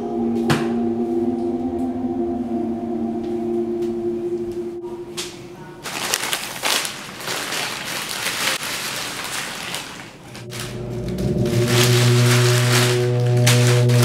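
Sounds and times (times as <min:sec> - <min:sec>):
paper bag crinkling: 0:05.8 - 0:14.0.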